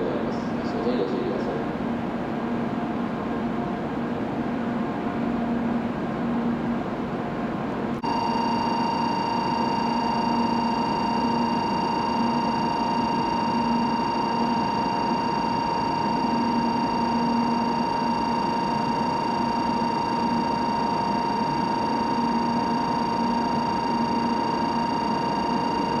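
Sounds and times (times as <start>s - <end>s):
platform hum: 0.0s - 26.0s
electronic warning tone: 8.0s - 26.0s.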